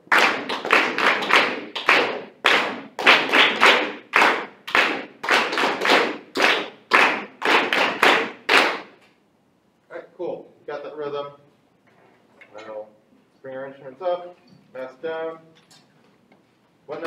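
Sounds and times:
hands clapping a rhythm: 0.0s - 9.2s.

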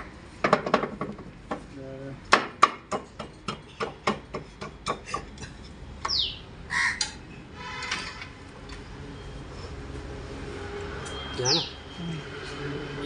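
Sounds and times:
birds calling: 6.0s - 7.2s, 11.2s - 12.3s.

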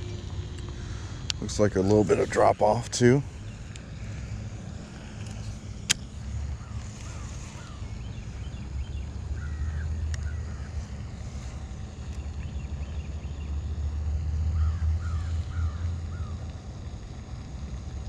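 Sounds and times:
faint bird chirps: 6.6s - 10.8s.

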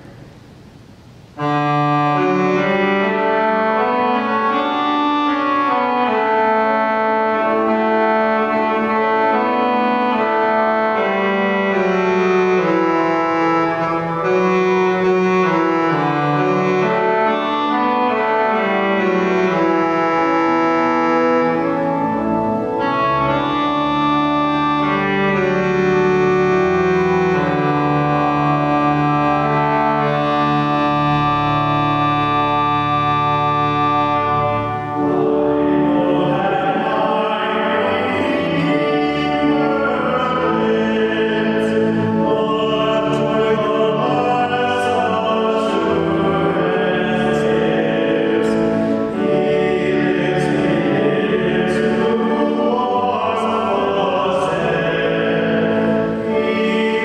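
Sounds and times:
church organ playing hymn: 0.0s - 57.0s.

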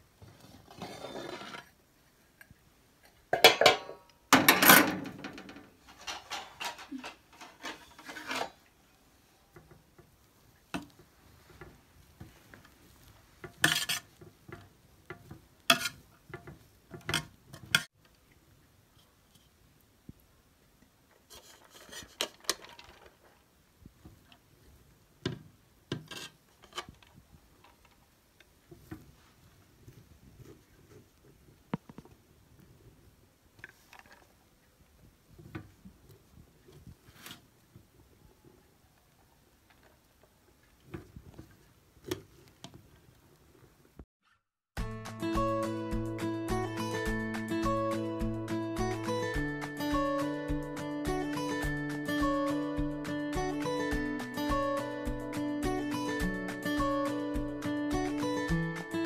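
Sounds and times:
metal skimmer scraping pot: 0.4s - 1.8s, 5.8s - 8.7s.

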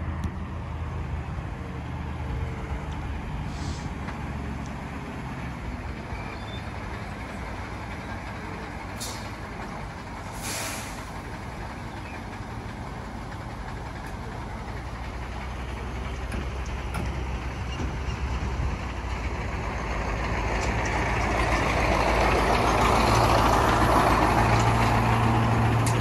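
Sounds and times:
truck diesel engine running: 0.0s - 26.0s
air brake hisses: 3.4s - 4.0s, 9.0s - 9.4s, 10.3s - 11.2s.

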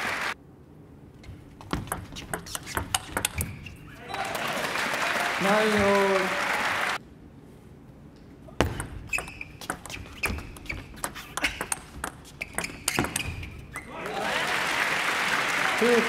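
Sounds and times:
crowd noise: 0.0s - 0.4s, 3.9s - 7.0s, 13.8s - 16.0s
ping pong ball clicking on paddles: 1.6s - 3.6s, 8.6s - 13.6s.

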